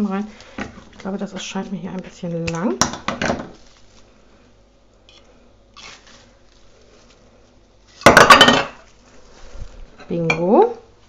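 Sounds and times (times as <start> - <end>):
leaves rustling: 5.8 - 8.0, 8.8 - 9.9.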